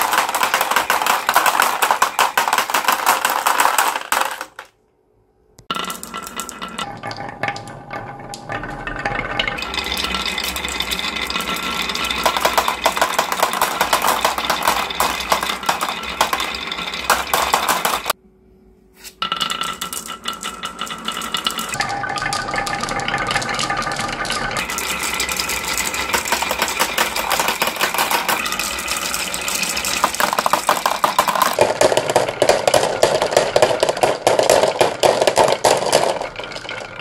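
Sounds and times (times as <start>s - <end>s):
marbles clattering on wooden tracks: 0.0s - 4.8s, 5.6s - 18.2s, 19.2s - 37.0s.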